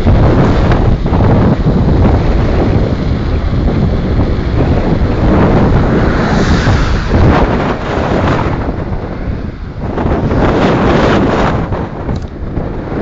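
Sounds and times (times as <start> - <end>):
wind buffeting microphone: 0.0 - 13.0
passing car tyre hiss: 4.2 - 10.3.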